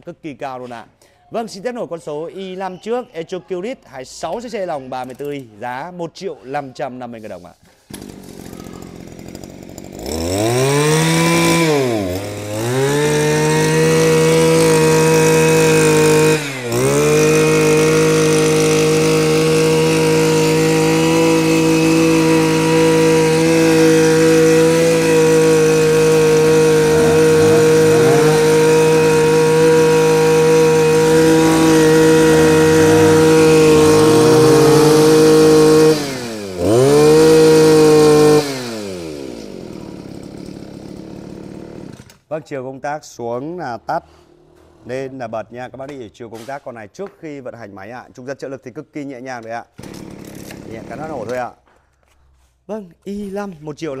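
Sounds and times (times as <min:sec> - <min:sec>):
brush cutter engine revving: 0:07.9 - 0:42.1, 0:49.8 - 0:51.4.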